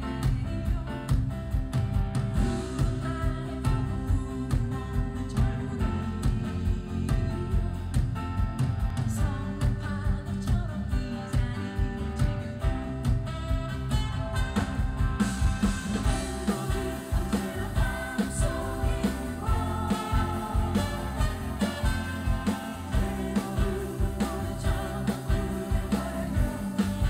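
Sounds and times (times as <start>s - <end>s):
live pop band playing: 0.0s - 27.0s
person singing: 2.4s - 8.2s, 16.0s - 27.0s.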